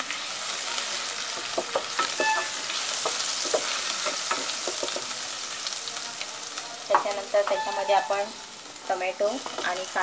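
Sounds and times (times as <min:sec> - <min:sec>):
garlic sizzling in oil: 0:00.0 - 0:10.0.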